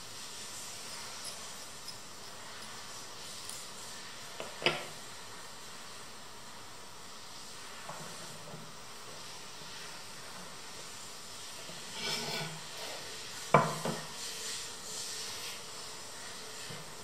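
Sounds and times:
chair slat scraping wooden floor: 11.7s - 13.0s.

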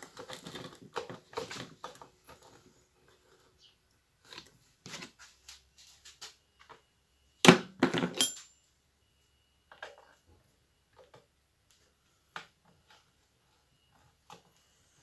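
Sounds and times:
screwdriver clinking on workbench: 8.0s - 8.5s.

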